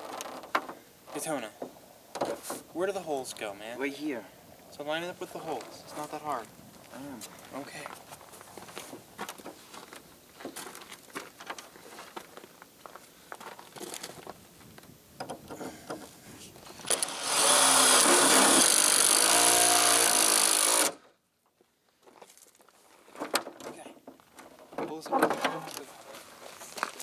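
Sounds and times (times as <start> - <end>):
cordless drill running: 16.9 - 21.0.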